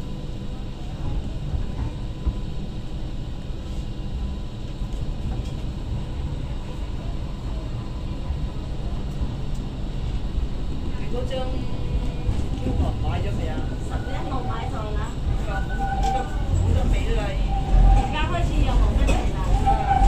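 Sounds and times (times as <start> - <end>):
light rail train rumbling: 0.0 - 20.0.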